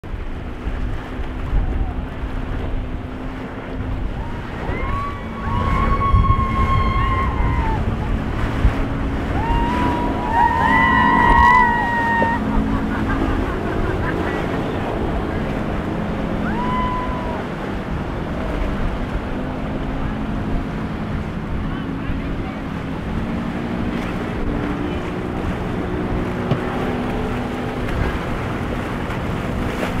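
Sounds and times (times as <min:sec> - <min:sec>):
outboard motor running: 0:00.0 - 0:30.0
water rushing off hull: 0:00.0 - 0:30.0
wind on microphone: 0:00.0 - 0:30.0
people whooping and cheering: 0:04.1 - 0:08.2, 0:09.2 - 0:14.1, 0:16.3 - 0:17.6.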